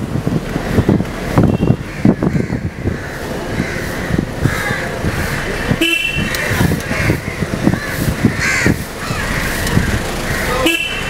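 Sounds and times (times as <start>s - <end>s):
street traffic: 0.0s - 11.0s
car horn toots: 1.4s - 1.9s, 5.7s - 6.6s, 10.5s - 11.0s
crows cawing: 1.9s - 10.8s.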